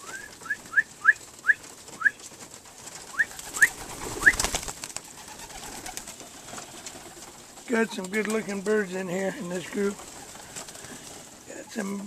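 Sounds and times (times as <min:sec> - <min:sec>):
pigeons peeping: 0:00.0 - 0:12.0
wing rustle: 0:00.0 - 0:12.0.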